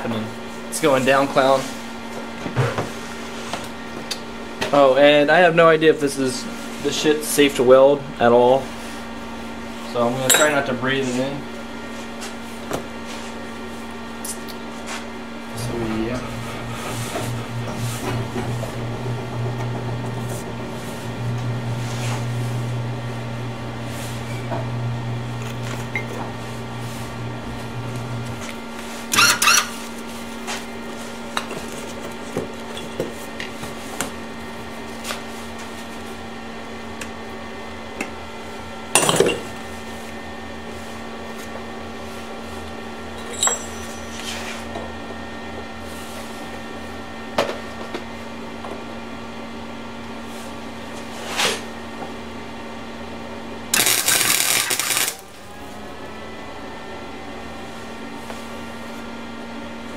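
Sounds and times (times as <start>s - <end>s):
steady hum: 4.2s - 31.5s, 53.3s - 59.8s
metallic knocks and clinks: 43.2s - 44.1s
welder arc crackling: 53.7s - 55.2s.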